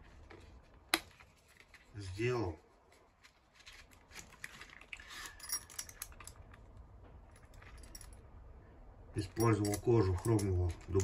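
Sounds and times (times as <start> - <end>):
keys clinking: 4.9 - 6.6, 7.3 - 8.3, 9.2 - 11.0.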